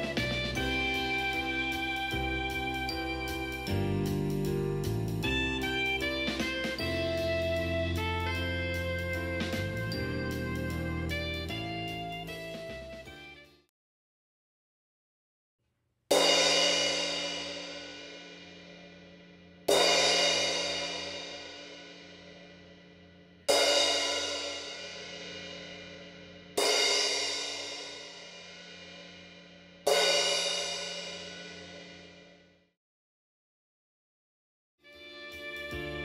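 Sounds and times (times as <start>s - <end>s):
crash cymbal struck with mallet: 16.1s - 32.4s.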